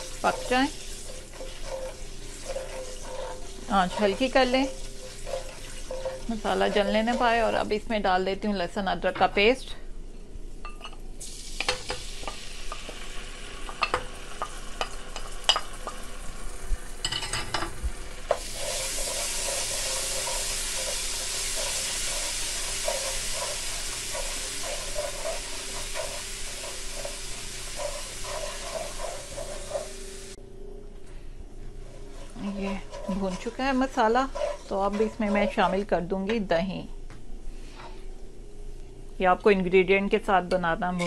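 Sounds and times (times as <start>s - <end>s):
stirring strokes: 0.0s - 7.8s, 18.3s - 30.4s, 31.7s - 36.1s
paste frying in hot oil: 0.0s - 8.0s, 11.2s - 30.4s, 31.8s - 36.1s.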